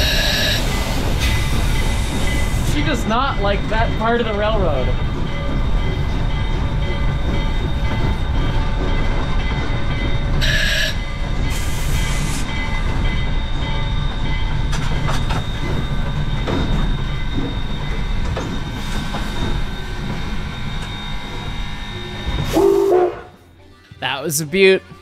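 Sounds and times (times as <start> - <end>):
brake squeal: 0.0 - 2.9
air hissing: 0.0 - 3.0, 11.4 - 12.6
train rolling low rumble: 0.0 - 24.0.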